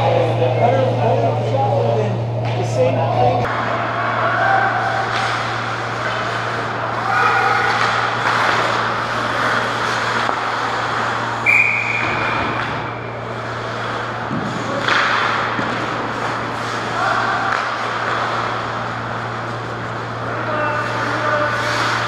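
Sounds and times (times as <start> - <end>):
low rink hum: 0.0 - 22.0
ice hockey play: 3.5 - 22.0
referee's whistle: 11.4 - 12.2.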